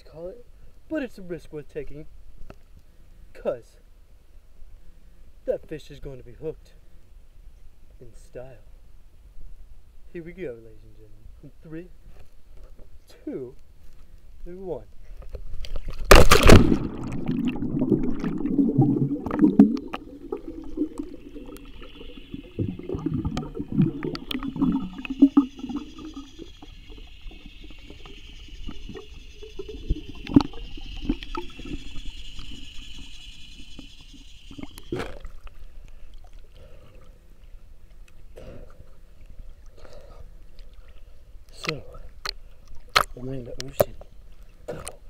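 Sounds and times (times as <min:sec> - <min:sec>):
faint steady hiss: 0:00.0 - 0:45.0
underwater bubbling and sloshing: 0:14.9 - 0:45.0
body splashing into pool: 0:15.8 - 0:21.5.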